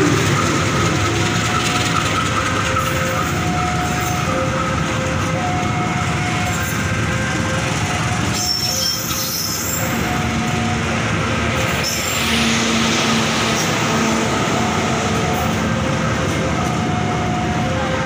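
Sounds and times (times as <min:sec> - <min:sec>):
train wheels rumbling on rail: 0:00.0 - 0:18.0
squealing wheels: 0:08.3 - 0:10.0, 0:11.6 - 0:12.5.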